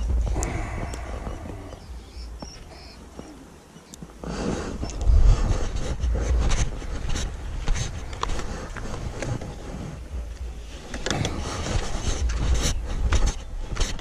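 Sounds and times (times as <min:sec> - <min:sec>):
camera handling rumble and rustle: 0:04.0 - 0:14.0.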